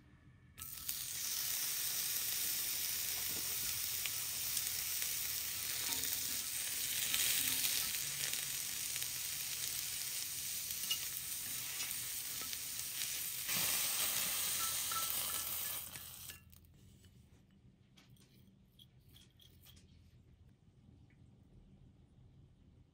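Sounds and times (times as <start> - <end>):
vegetables sizzling in a pan: 0.6 - 16.4.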